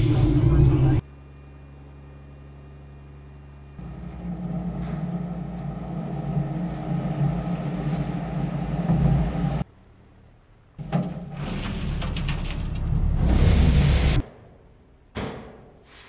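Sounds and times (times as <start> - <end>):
truck engine droning: 0.0 - 15.1
faint hum: 0.0 - 16.0
asphalt millings sliding out: 10.8 - 14.2.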